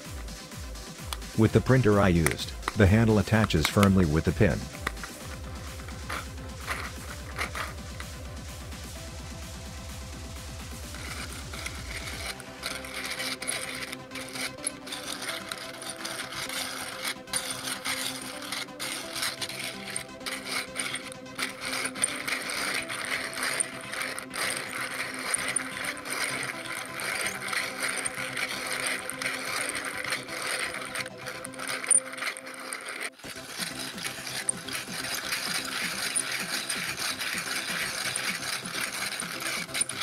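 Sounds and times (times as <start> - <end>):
plastic engine model clicking rattle: 1.0 - 8.2, 10.9 - 40.0
plastic engine model clicking: 1.1 - 8.1.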